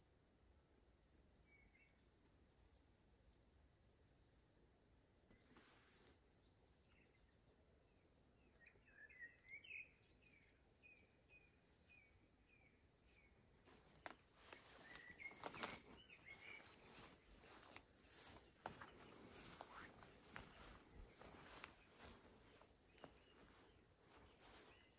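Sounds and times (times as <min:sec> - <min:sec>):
crickets trilling: 0:05.2 - 0:24.9.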